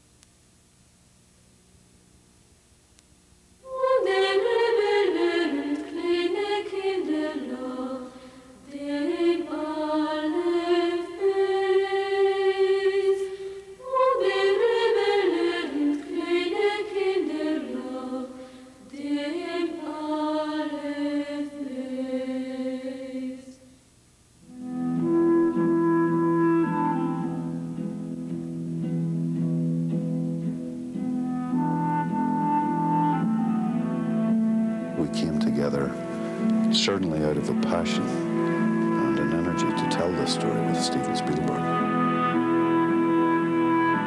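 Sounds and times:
instruments holding steady notes: 3.6s - 23.7s, 24.4s - 44.0s
slow ornamented chant-like melody: 3.6s - 23.7s, 31.0s - 44.0s.

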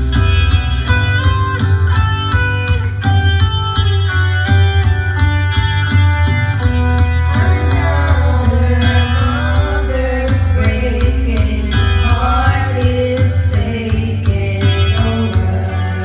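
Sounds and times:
bass-heavy backing track: 0.0s - 16.0s
women singing into microphones: 7.2s - 16.0s.

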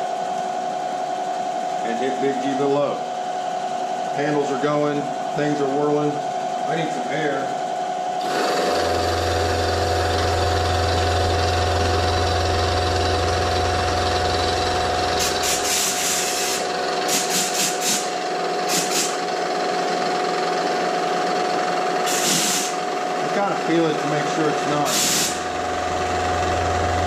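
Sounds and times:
milling machine whine: 1.4s - 27.0s
compressed air hissing blasts: 15.2s - 19.2s, 22.0s - 22.8s, 24.8s - 25.5s.

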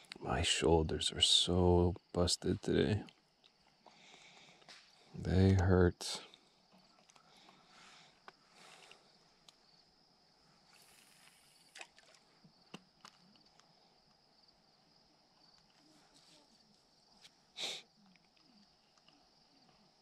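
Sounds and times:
high-pitched insect chorus: 0.0s - 12.7s.

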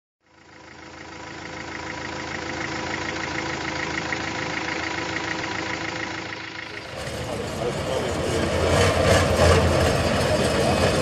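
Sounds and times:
truck diesel engine idling: 0.2s - 11.0s.

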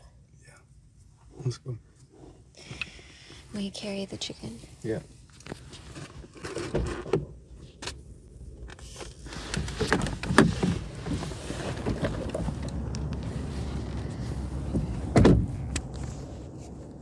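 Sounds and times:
handling and shuffling noises: 3.4s - 17.0s
knocks and thump: 14.6s - 15.7s.

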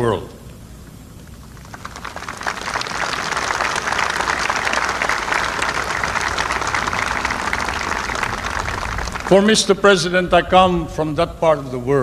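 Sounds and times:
crowd applauding: 1.3s - 9.8s.

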